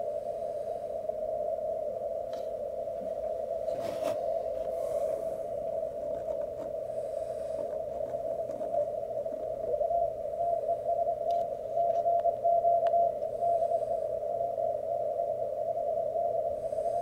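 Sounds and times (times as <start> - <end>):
radio static hiss: 0.0 - 17.0
morse code tone pulses: 2.9 - 17.0
faint radio clicks: 7.6 - 9.8, 11.2 - 13.3.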